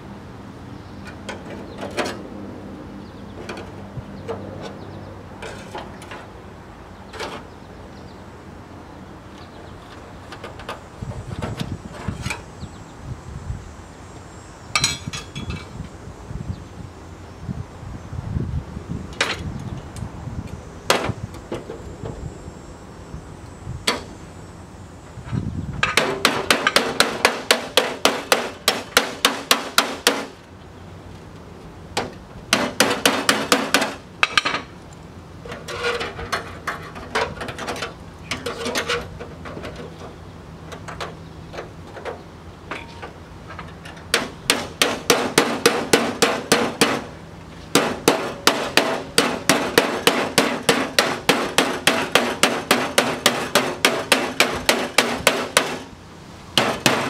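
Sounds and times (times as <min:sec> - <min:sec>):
hammer striking sheet steel: 0:26.0 - 0:30.4, 0:32.5 - 0:34.6, 0:44.1 - 0:47.1, 0:47.7 - 0:55.9, 0:56.6 - 0:57.0.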